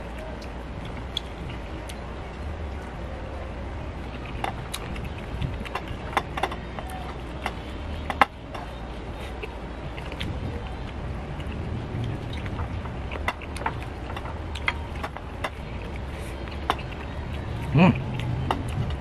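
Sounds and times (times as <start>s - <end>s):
small clicks and taps on plate: 4.2s - 8.8s, 12.3s - 19.0s.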